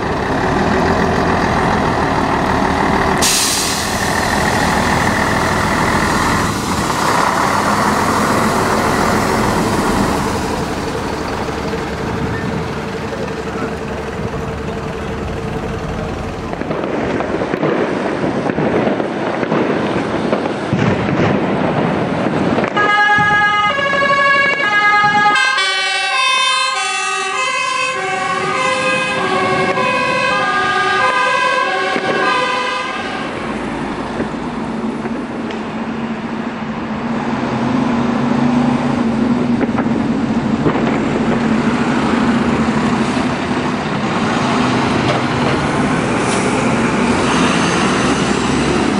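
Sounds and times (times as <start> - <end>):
heavy vehicle engine: 0.0 - 48.9
fire engine two-tone siren: 3.2 - 17.6, 22.6 - 33.6.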